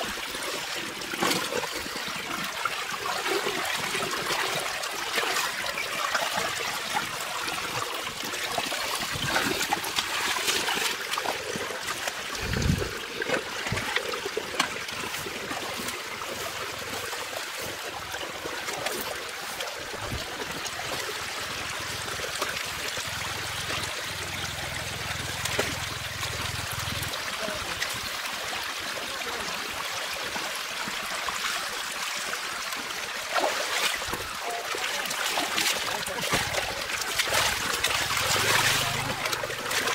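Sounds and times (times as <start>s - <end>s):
water splashes: 0.0s - 39.9s
shallow water trickling: 32.8s - 39.9s.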